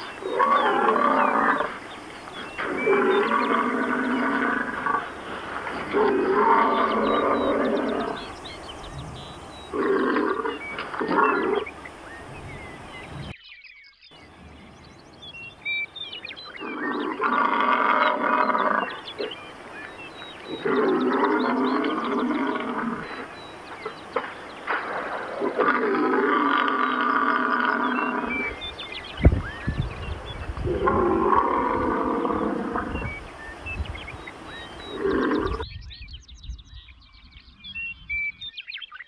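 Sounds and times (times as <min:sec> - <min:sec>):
bison bellowing: 0:00.0 - 0:13.3, 0:16.5 - 0:28.6, 0:30.6 - 0:33.3, 0:34.4 - 0:35.6.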